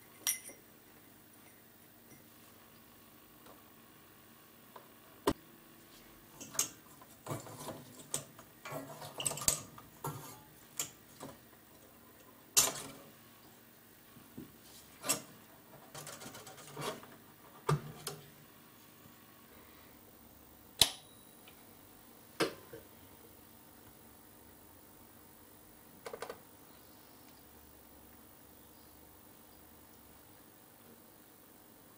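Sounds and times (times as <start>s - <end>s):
metal and glass clinks and rattles: 0.1s - 0.6s.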